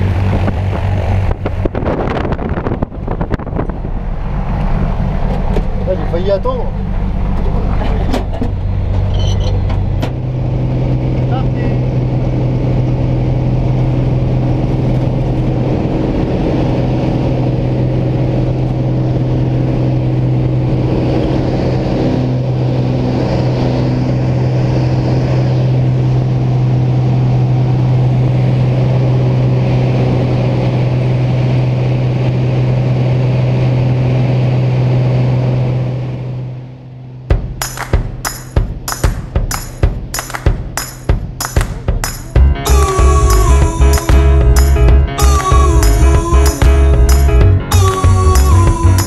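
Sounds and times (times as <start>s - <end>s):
light aircraft engine droning: 0.0s - 37.3s.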